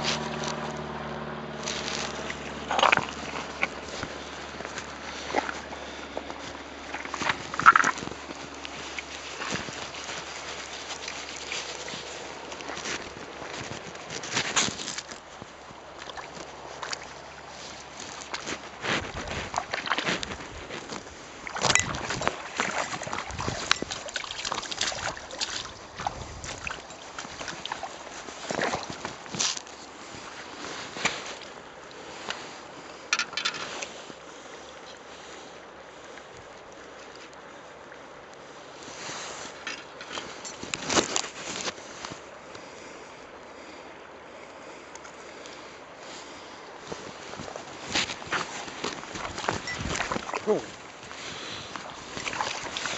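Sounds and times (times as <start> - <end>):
shallow water splashing: 0.0 - 33.0, 44.4 - 52.9.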